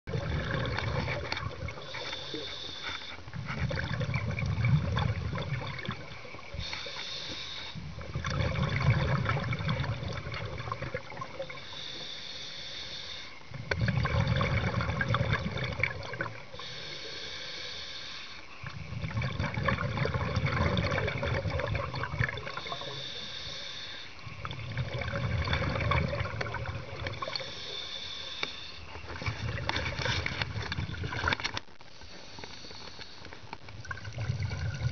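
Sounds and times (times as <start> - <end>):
bubbling exhale: 0.1 - 31.4, 33.9 - 34.9
hissing regulator inhale: 1.7 - 3.7, 6.4 - 8.0, 11.4 - 13.6, 16.5 - 18.7, 22.5 - 24.5, 27.1 - 29.4, 31.9 - 33.6.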